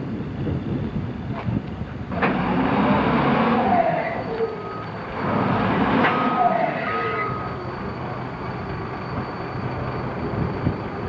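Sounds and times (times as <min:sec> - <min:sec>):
heavy machinery rumbling: 0:00.0 - 0:11.0
metallic squealing: 0:03.6 - 0:11.0.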